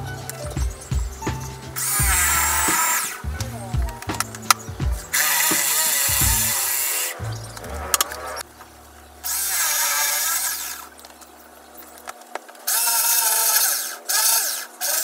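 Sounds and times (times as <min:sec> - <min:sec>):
electric drill boring into panel: 0:12.7 - 0:15.0.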